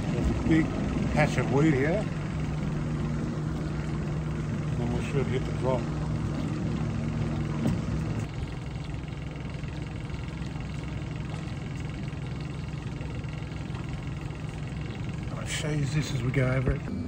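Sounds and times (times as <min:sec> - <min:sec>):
boat engine idling: 0:00.0 - 0:17.0.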